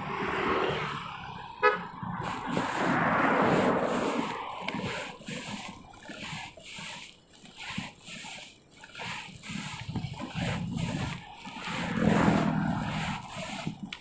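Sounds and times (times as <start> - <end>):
car passing by: 0.0 - 5.5, 11.6 - 13.2
car horn toot: 1.6 - 1.9.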